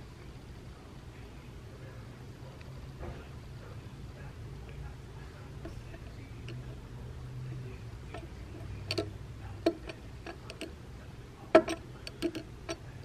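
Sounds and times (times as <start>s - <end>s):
faint low hum: 0.0s - 13.0s
metal buckle tapping on wood: 5.6s - 6.8s, 8.1s - 10.7s, 11.5s - 12.8s.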